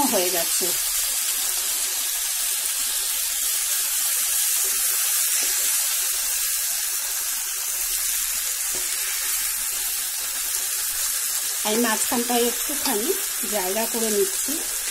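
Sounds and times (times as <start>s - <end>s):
eggplant frying in oil: 0.0s - 14.9s.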